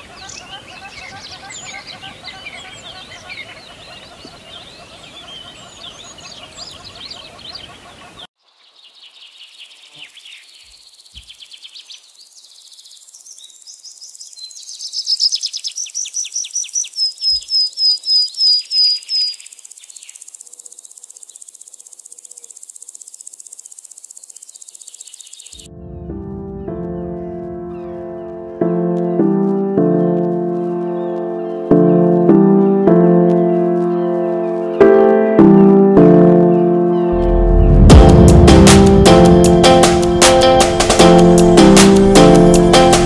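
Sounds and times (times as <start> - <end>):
birds chirping and calling: 0.0 - 22.6
high insect drone: 19.3 - 25.6.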